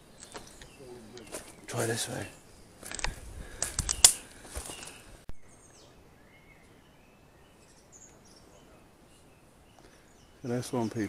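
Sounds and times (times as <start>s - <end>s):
small birds chirping: 0.0s - 11.0s
footsteps through undergrowth: 0.2s - 5.2s
brush rustling and snapping: 2.8s - 5.0s.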